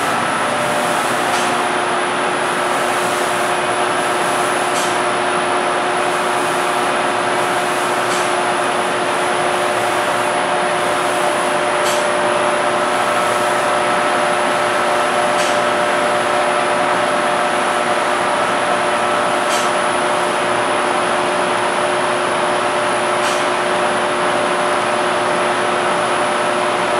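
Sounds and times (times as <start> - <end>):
spray machine hissing: 0.0 - 1.8, 2.4 - 5.0, 6.0 - 11.7, 12.8 - 15.8
steady humming tones: 0.0 - 26.9.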